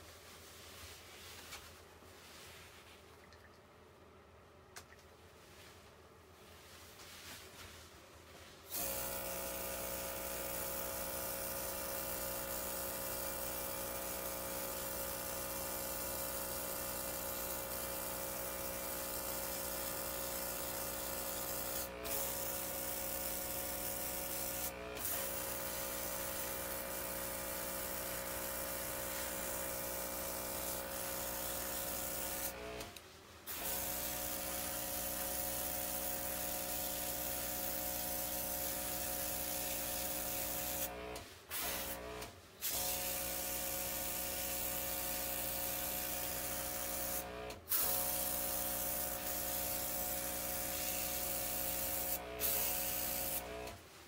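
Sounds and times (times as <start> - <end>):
airbrush air hissing: 47.8 - 53.4.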